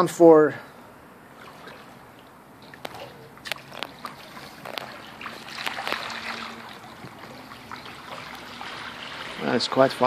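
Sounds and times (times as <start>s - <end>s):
pool water sloshing and lapping: 0.2s - 10.0s
sharp little splashes: 1.3s - 10.0s.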